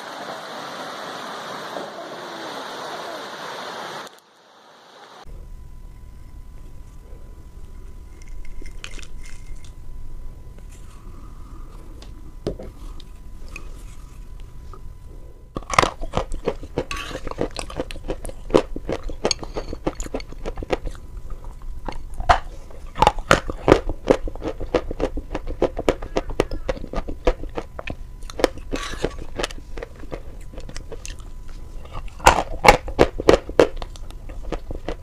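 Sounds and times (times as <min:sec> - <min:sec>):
crunchy chewing: 0:06.6 - 0:09.8, 0:10.5 - 0:35.0.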